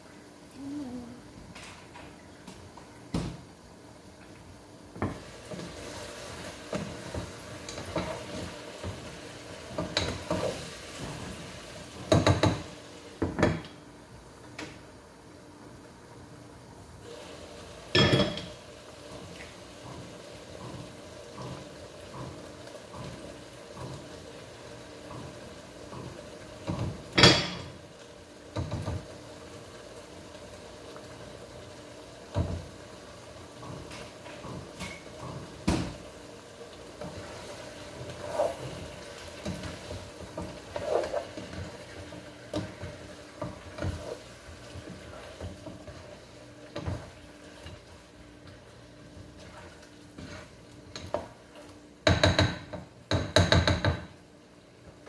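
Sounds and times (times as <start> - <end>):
pots and utensils clinking: 12.0 - 13.8, 17.9 - 18.6, 25.0 - 27.8.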